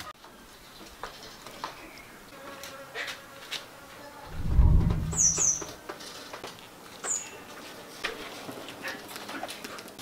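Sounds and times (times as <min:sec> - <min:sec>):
low buzz: 0:04.2 - 0:05.7
small bird chirping: 0:05.0 - 0:05.8.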